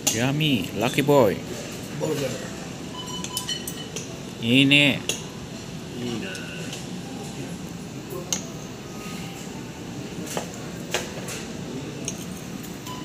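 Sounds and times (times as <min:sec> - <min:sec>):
low background hum: 0:00.0 - 0:13.0
cutlery clinking on metal plates: 0:03.0 - 0:04.2, 0:10.2 - 0:13.0.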